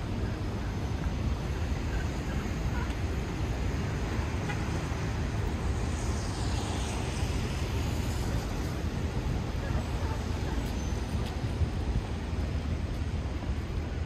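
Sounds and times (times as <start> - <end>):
rain hiss: 0.0 - 14.0
traffic rumble: 0.0 - 14.0
tyre hiss on wet pavement: 2.3 - 13.2.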